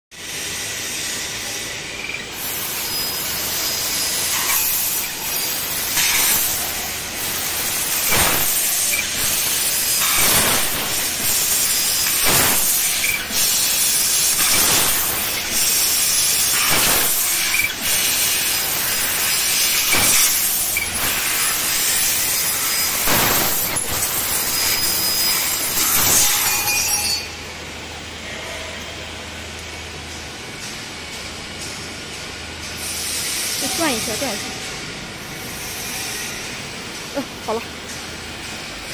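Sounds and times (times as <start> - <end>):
gas hissing from cutting head: 0.3 - 26.4.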